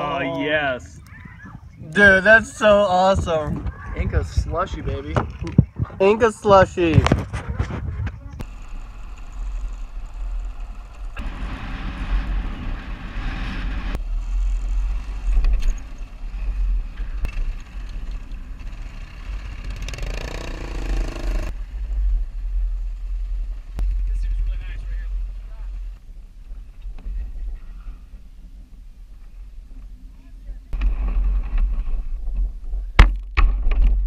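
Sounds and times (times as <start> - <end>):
wind rumble on microphone: 0.4 - 18.6, 21.4 - 34.0
motorcycle engine: 8.2 - 26.0.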